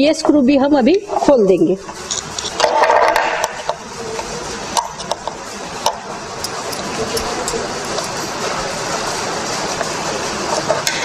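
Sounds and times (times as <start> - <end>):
steady background noise: 0.0 - 11.0
screwdriver scraping metal: 1.9 - 2.6, 6.4 - 8.6
metal clicks and taps: 4.8 - 8.3.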